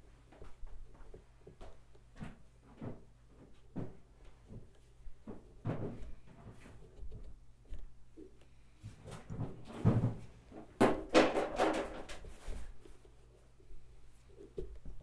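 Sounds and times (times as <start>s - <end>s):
objects knocking and bumping: 2.2s - 7.3s, 8.9s - 12.7s.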